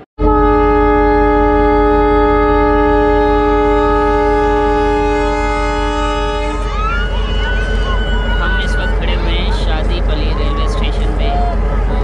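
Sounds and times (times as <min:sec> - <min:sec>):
low train rumble: 0:00.0 - 0:12.0
train air horn blast: 0:00.2 - 0:08.6.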